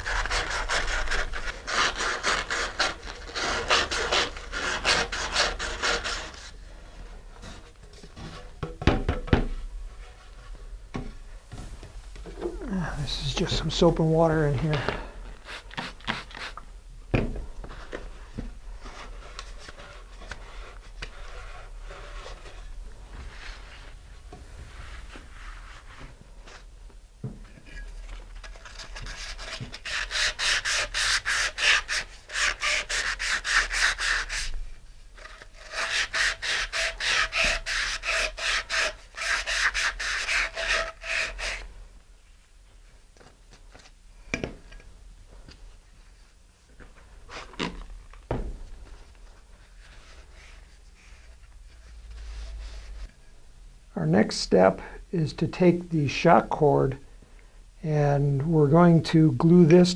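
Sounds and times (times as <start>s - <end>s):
sandpaper rasping on fiberglass: 0.0s - 6.5s, 28.7s - 34.6s, 35.2s - 41.7s
quiet rubbing and wiping: 9.5s - 16.7s, 17.4s - 44.0s, 45.2s - 56.6s.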